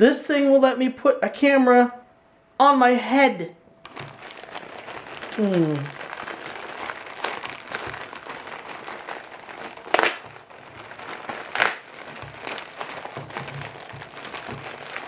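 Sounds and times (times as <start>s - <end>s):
plastic bag crinkling: 3.8s - 15.0s.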